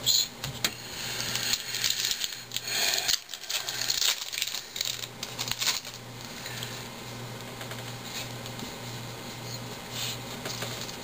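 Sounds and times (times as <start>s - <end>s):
low steady hum: 0.0s - 11.0s
foil wrapper crinkling: 1.3s - 6.5s
cards rustling: 1.4s - 6.4s.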